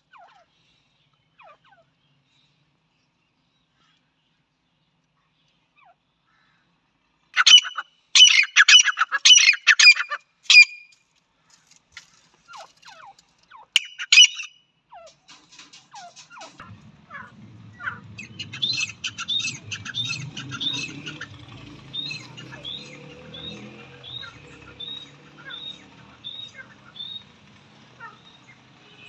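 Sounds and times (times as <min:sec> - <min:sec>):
francolin calling: 0:07.4 - 0:10.8, 0:13.7 - 0:14.6, 0:16.0 - 0:27.3.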